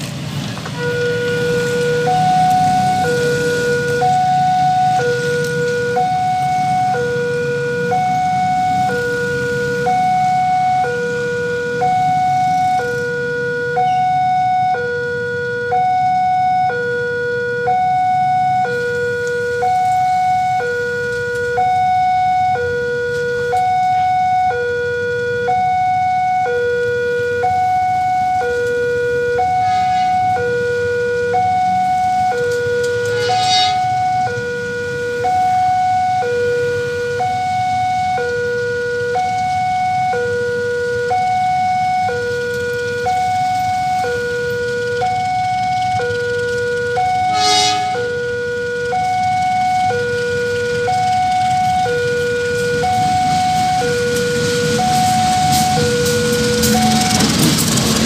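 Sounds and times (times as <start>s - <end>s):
low rumble of traffic: 0.0s - 58.0s
level crossing two-tone alarm: 0.8s - 58.0s
brief high-pitched sound: 29.6s - 30.4s, 33.0s - 34.0s, 47.3s - 48.1s.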